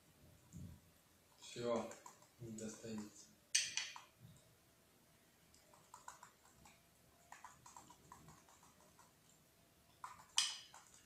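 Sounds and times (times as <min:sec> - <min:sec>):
small clicks and taps on floor: 0:01.8 - 0:04.1, 0:10.0 - 0:11.0.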